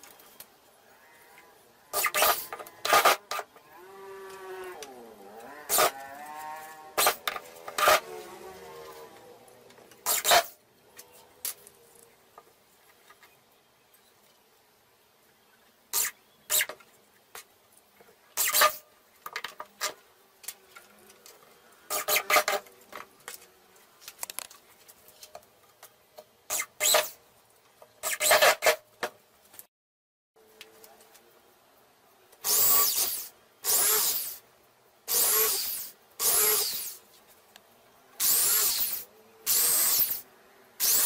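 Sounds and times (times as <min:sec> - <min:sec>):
electric drill boring: 0:32.5 - 0:34.4, 0:35.1 - 0:37.0, 0:38.2 - 0:40.2, 0:40.8 - 0:41.0.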